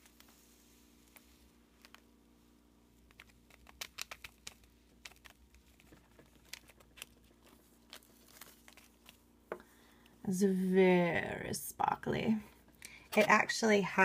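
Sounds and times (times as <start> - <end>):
plastic bag crinkling: 2.9 - 10.0.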